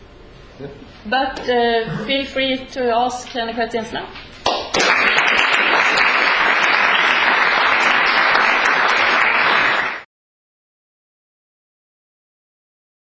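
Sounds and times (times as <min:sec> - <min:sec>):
audience applauding: 0:04.5 - 0:10.1.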